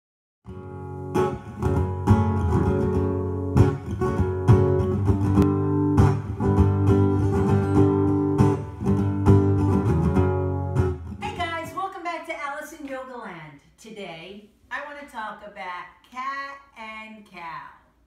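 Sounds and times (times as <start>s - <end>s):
acoustic guitar strumming: 0.5s - 11.7s.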